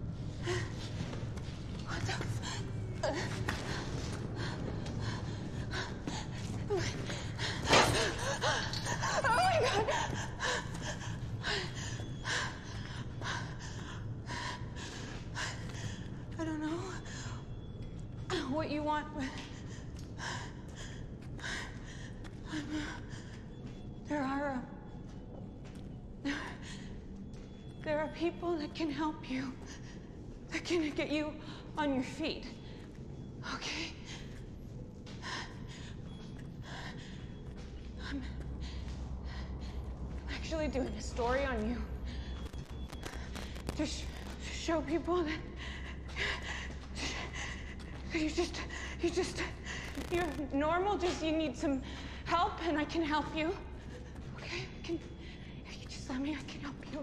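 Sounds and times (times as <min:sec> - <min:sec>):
steady low hum: 0:00.0 - 0:57.0
woman panting heavily: 0:00.2 - 0:16.3, 0:33.5 - 0:41.2, 0:41.8 - 0:50.4
woman whimpering: 0:05.8 - 0:12.8
low rumble: 0:32.5 - 0:57.0.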